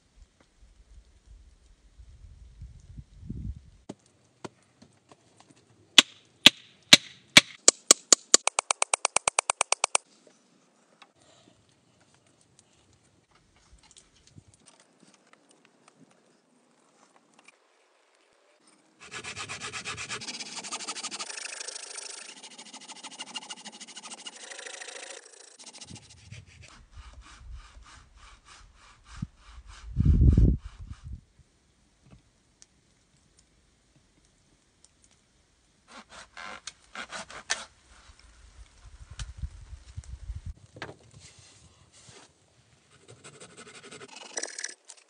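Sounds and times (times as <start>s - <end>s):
saw cutting wood: 19.0s - 30.0s, 35.9s - 37.7s, 43.0s - 44.9s.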